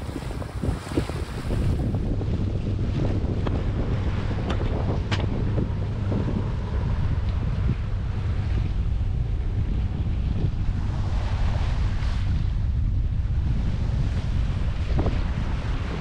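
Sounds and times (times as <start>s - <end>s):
water rushing along hull: 0.0s - 16.0s
wind buffeting microphone: 0.0s - 16.0s.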